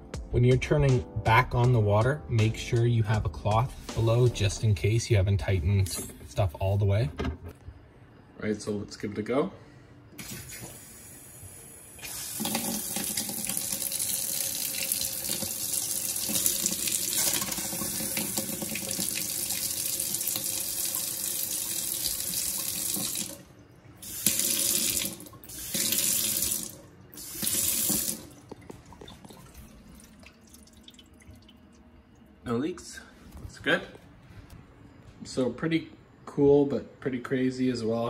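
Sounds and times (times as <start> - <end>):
water pouring into steel sink: 12.0 - 23.4, 24.0 - 28.4, 29.0 - 31.6.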